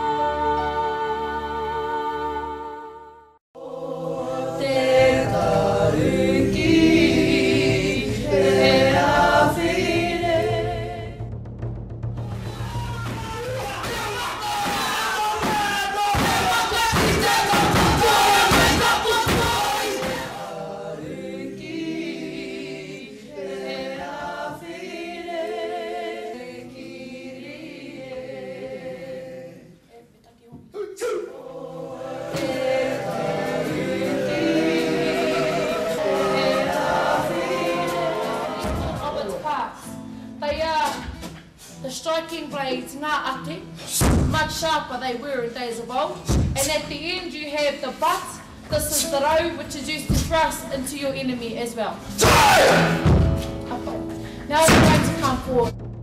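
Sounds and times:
choir singing long notes: 0.0s - 11.3s, 12.2s - 29.9s, 30.8s - 39.4s, 52.2s - 54.0s
music: 0.0s - 30.6s, 31.2s - 56.0s.

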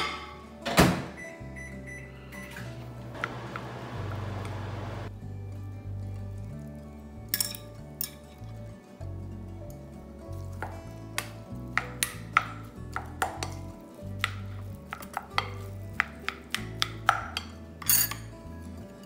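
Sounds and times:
background music with bass: 3.9s - 19.0s.

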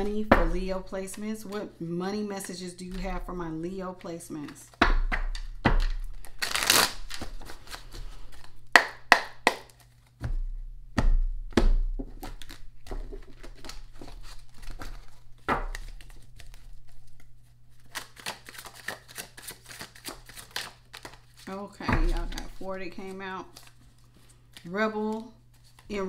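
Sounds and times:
cards being shuffled: 2.4s - 10.3s, 12.0s - 26.0s
cards thumping on table: 4.7s - 16.9s, 21.8s - 23.2s.

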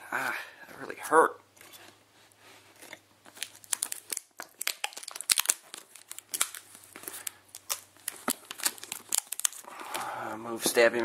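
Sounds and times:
plastic wrapping crinkling and tearing: 3.2s - 10.1s.

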